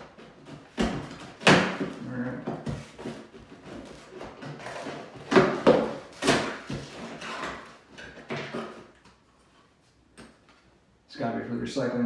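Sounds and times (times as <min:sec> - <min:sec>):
cardboard box popping and scraping: 0:00.1 - 0:08.9.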